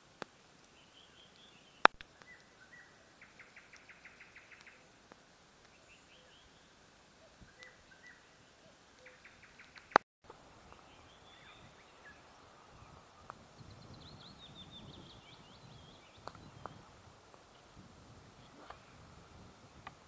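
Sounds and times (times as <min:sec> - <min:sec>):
songbirds chirping: 0:00.0 - 0:20.0
faint ticks: 0:00.2 - 0:02.6.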